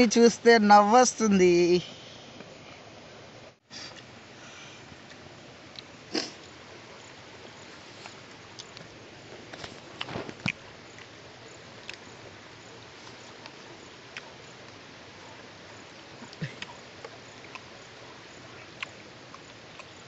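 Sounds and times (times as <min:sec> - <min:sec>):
steady low hiss: 0:00.0 - 0:20.0
clicks and knocks of eating: 0:16.2 - 0:17.7, 0:18.5 - 0:20.0.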